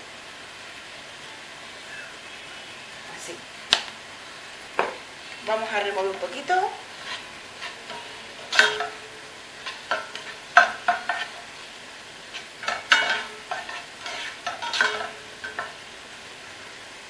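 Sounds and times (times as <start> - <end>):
sofrito sizzling in a pot: 0.0 - 17.0
utensil scraping and knocking pot: 6.7 - 11.6, 12.3 - 15.8.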